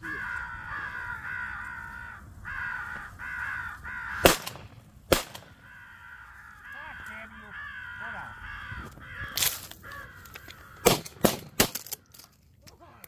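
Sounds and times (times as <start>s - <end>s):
crows cawing: 0.0s - 12.6s
shotgun shots: 4.2s - 5.6s, 10.8s - 11.8s.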